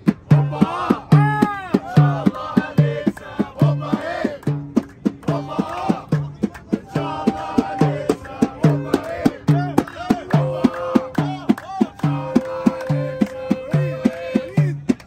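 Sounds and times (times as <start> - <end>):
group of voices singing and chanting: 0.0 - 15.0
hands clapping: 3.0 - 6.8, 7.6 - 15.0.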